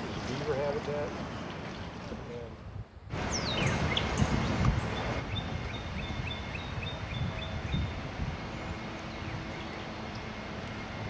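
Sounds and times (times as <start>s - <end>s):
rushing water: 0.0s - 11.0s
wind: 0.0s - 11.0s
bird chirping: 3.2s - 11.0s.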